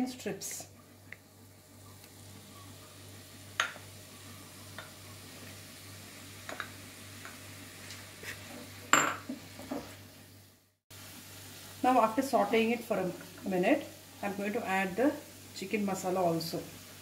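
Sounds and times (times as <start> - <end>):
low steady sizzle: 0.0 - 17.0
spoon clinking on glass and pan: 8.9 - 9.3.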